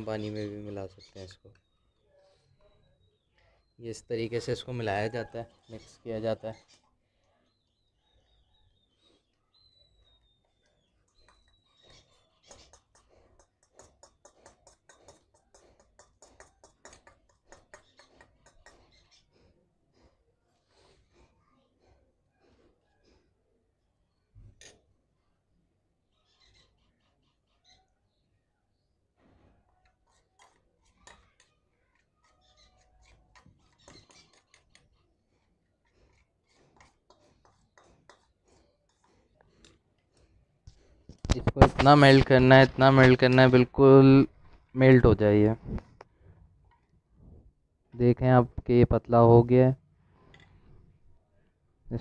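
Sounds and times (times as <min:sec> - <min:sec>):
metal spoon scraping steel bowl: 0:29.9 - 0:39.8.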